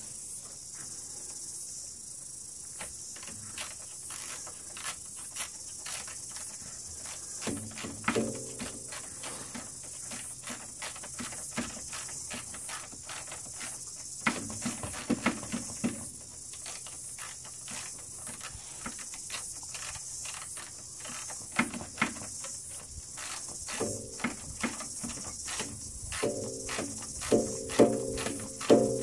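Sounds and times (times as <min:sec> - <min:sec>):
steady high hiss: 0:00.0 - 0:29.0
loud knocks: 0:26.1 - 0:29.0.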